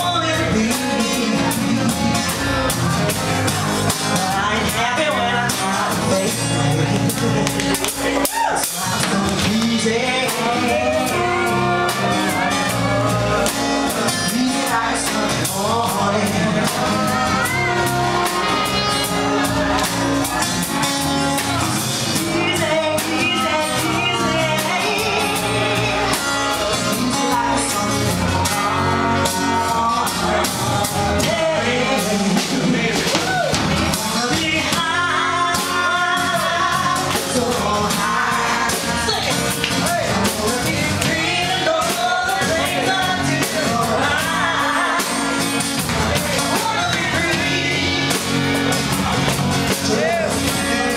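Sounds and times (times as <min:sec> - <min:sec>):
live band playing soul ballad: 0:00.0 - 0:50.9.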